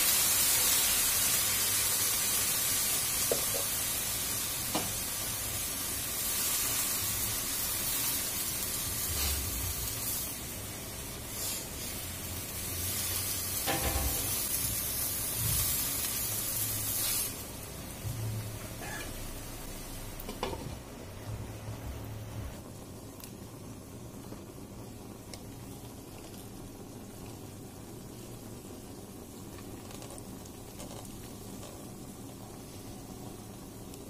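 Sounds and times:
food sizzling in a frying pan: 0.0s - 34.0s.

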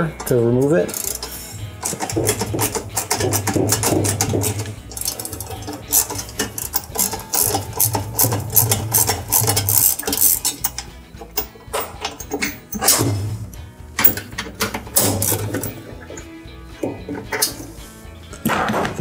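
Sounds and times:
socket ratchet clicking: 0.9s - 13.0s.

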